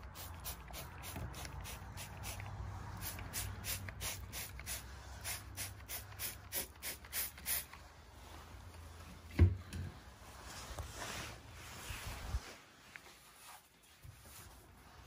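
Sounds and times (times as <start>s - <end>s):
hissing spray degreaser strokes: 0.0s - 7.8s.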